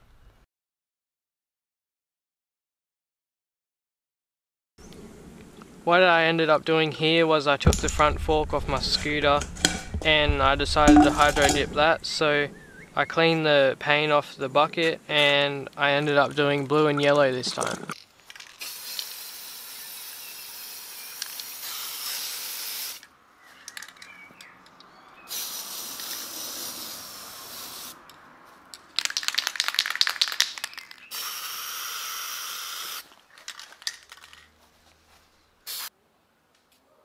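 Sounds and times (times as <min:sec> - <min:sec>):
spray can rattling: 0:07.6 - 0:11.9, 0:17.0 - 0:19.5, 0:21.2 - 0:22.9, 0:25.3 - 0:27.9, 0:28.9 - 0:31.4, 0:33.3 - 0:34.5, 0:35.7 - 0:35.9
spray paint can hissing: 0:18.4 - 0:23.0, 0:25.3 - 0:28.0, 0:29.0 - 0:33.0, 0:35.6 - 0:35.9.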